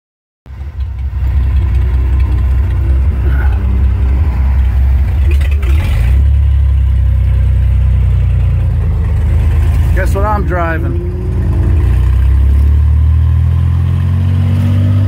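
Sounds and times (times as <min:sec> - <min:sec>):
car engine idling: 0:00.5 - 0:14.4.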